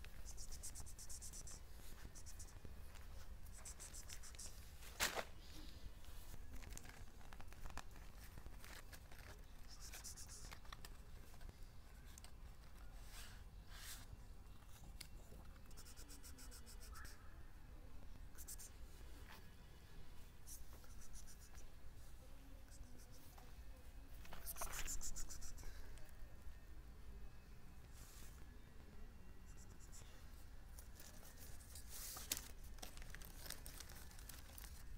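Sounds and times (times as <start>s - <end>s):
rustling and scraping: 0.0s - 15.7s, 30.7s - 34.9s.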